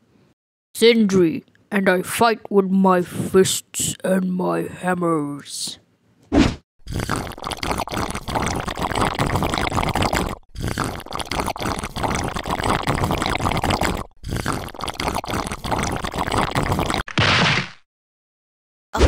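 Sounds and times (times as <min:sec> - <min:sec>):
gurgling liquid being chugged: 0:06.9 - 0:17.0.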